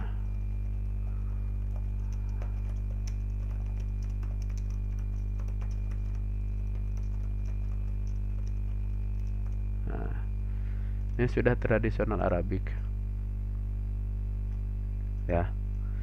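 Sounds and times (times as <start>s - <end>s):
electrical hum: 0.0s - 16.0s
keyboard typing: 0.6s - 9.7s.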